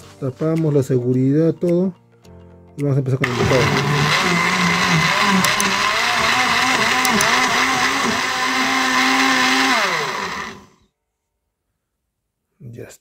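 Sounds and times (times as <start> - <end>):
blender motor running: 3.2 - 10.8.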